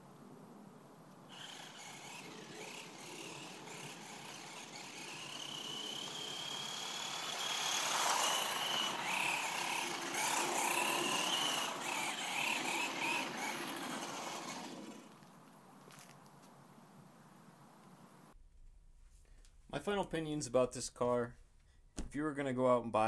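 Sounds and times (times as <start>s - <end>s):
electric motor whining: 1.3s - 15.3s
tyre noise on asphalt: 1.3s - 16.6s.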